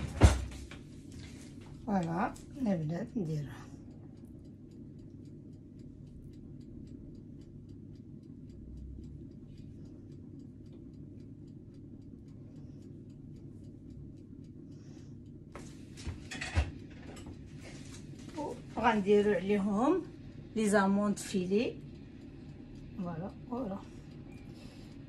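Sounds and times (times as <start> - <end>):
low steady hum: 0.0 - 25.0
steady ticking: 0.9 - 16.0, 16.7 - 25.0.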